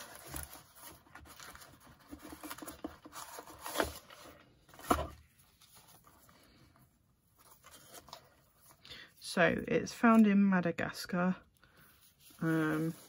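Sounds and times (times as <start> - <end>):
paper sheets rustling: 11.8 - 13.0.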